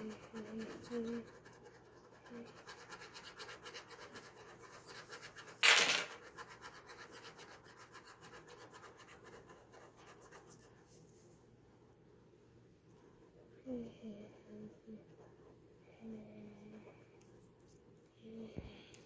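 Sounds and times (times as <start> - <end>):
ballpoint pen scratching paper: 0.0 - 11.0.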